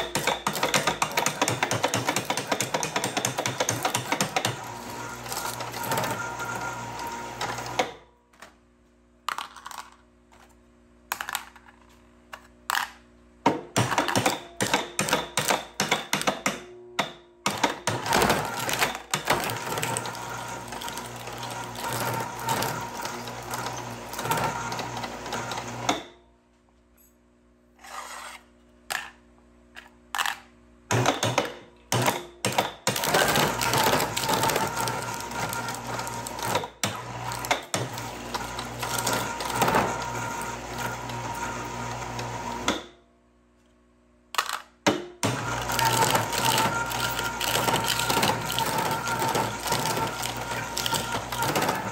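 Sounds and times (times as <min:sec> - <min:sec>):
shredder crunching cans: 0:00.0 - 0:08.0, 0:09.3 - 0:10.5, 0:12.5 - 0:16.5, 0:17.5 - 0:26.1, 0:30.2 - 0:42.9, 0:44.4 - 0:51.9
motor drive humming: 0:45.2 - 0:51.9.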